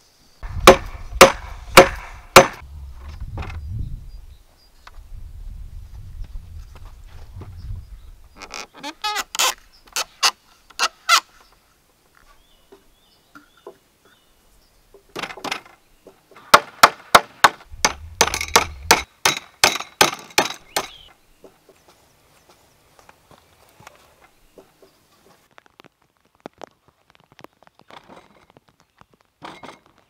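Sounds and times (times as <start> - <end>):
sharp knocks on wood: 0.6 - 2.6, 16.5 - 21.6.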